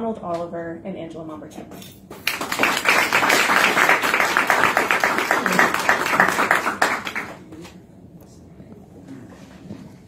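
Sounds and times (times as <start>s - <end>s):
audience applauding: 2.2s - 7.5s.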